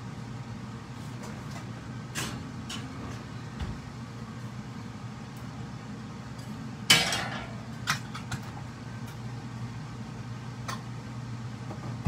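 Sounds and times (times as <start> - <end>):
steady low hum: 0.0 - 12.0
frying pan clanking on metal grate: 6.9 - 8.2.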